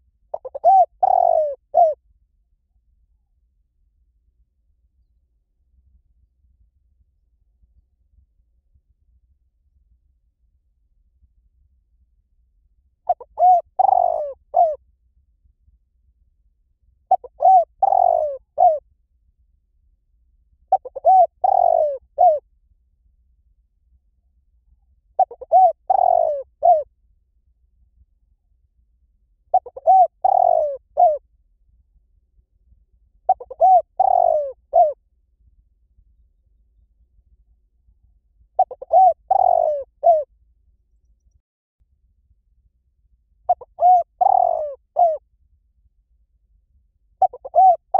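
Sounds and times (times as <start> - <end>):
dove cooing: 0.3 - 2.0, 13.1 - 14.8, 17.1 - 18.8, 20.7 - 22.4, 25.2 - 26.8, 29.5 - 31.2, 33.3 - 35.0, 38.6 - 40.3, 43.5 - 45.2, 47.2 - 47.9.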